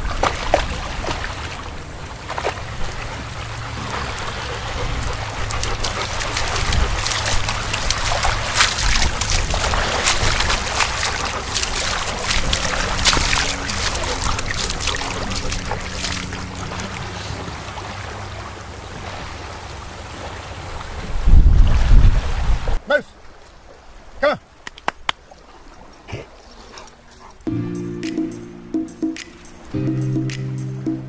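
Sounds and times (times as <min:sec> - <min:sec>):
wind rumbling on microphone: 0:00.0 - 0:22.8
small waves lapping and splashing: 0:00.0 - 0:27.5.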